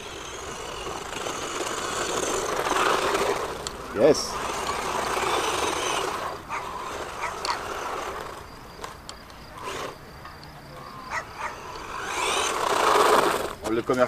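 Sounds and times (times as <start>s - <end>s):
toy truck electric motor whining: 0.0s - 14.0s
tyres on loose dirt: 0.0s - 14.0s.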